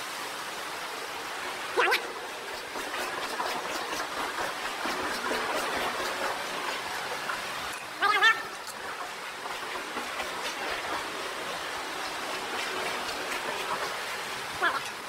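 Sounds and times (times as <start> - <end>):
water rushing in tunnel: 0.0 - 15.0.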